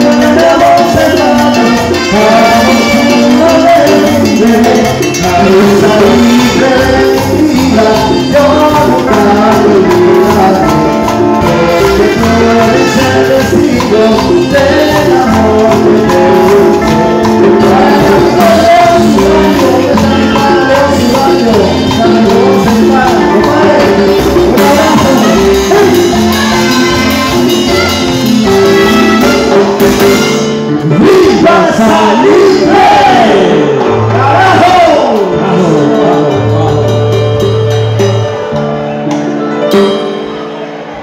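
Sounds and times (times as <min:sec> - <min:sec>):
trumpet: 0:00.0 - 0:36.8
latin dance band playing: 0:00.0 - 0:41.0.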